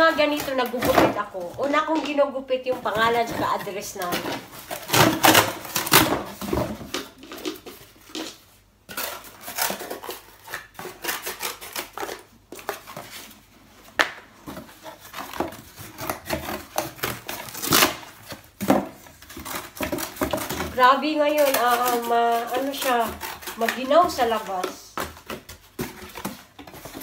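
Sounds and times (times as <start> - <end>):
cardboard scraping and rustling: 0.0 - 27.0
scissors cutting cardboard: 2.8 - 6.8, 8.9 - 13.2, 14.6 - 27.0.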